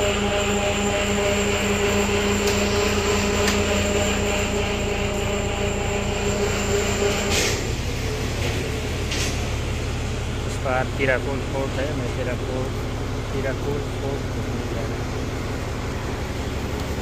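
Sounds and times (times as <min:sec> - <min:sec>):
boat engine droning: 0:00.0 - 0:17.0
high engine whine: 0:00.0 - 0:17.0.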